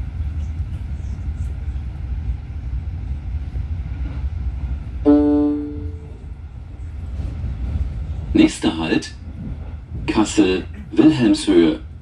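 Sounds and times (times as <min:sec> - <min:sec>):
train rumbling: 0:00.0 - 0:12.0
passenger information chime: 0:05.1 - 0:06.2.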